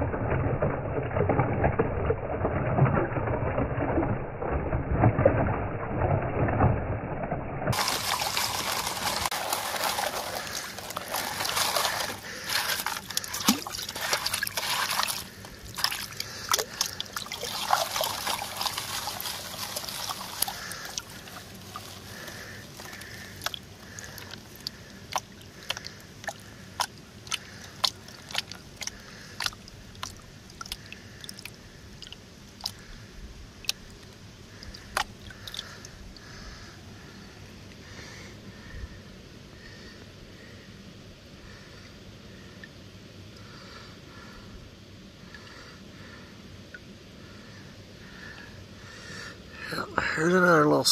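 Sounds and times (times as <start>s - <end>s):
water sloshing in a plastic pan: 7.7s - 32.9s, 33.6s - 36.5s.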